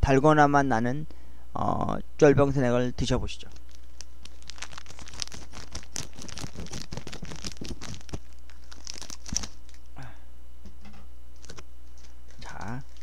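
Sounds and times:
low electrical hum: 0.0 - 13.0
snack packaging crinkling: 3.5 - 9.9, 11.4 - 13.0.

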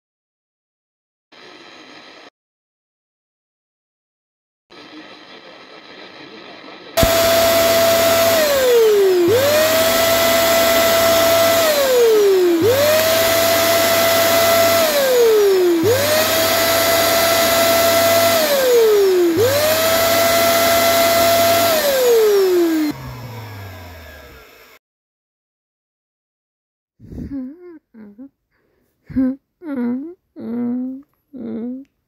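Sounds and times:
vacuum cleaner motor whine: 1.4 - 2.3, 4.7 - 24.8.

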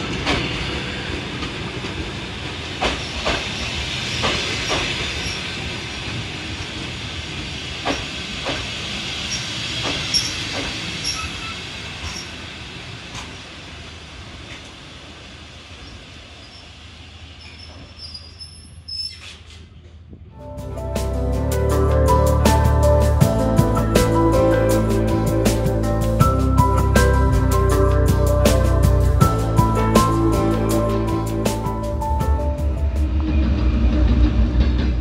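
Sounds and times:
train wheels clacking over rail joints: 0.0 - 6.2, 7.8 - 12.3
train rumble and hiss: 0.0 - 35.0
high wheel squeals: 11.0 - 12.3, 17.4 - 19.5.

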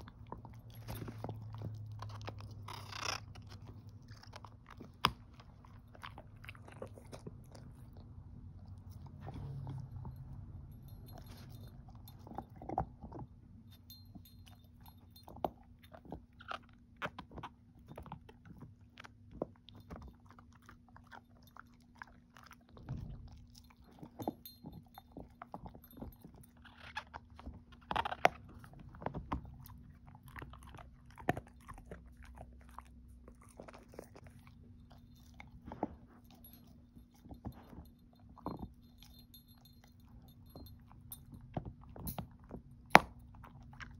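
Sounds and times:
dog crunching a chew treat: 0.0 - 43.9.

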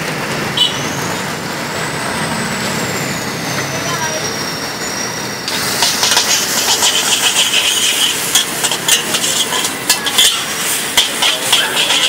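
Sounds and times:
food sizzling in a wok: 3.8 - 12.0
metal ladle scraping a wok: 5.4 - 12.0.

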